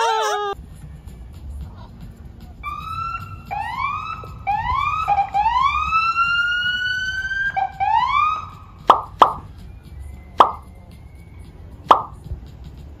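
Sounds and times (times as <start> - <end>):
emergency siren whooping: 2.6 - 8.9.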